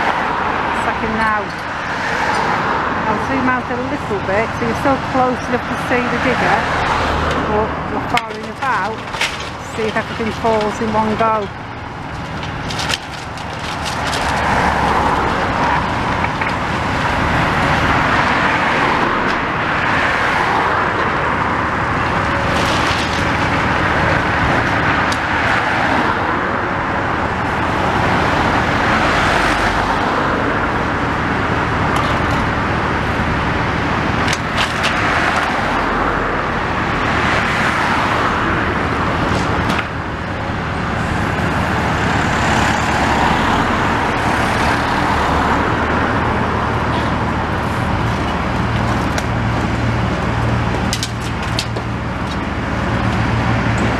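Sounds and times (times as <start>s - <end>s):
excavator diesel engine running: 0.0s - 53.9s
falling rubble clattering: 8.0s - 10.8s, 11.5s - 16.6s.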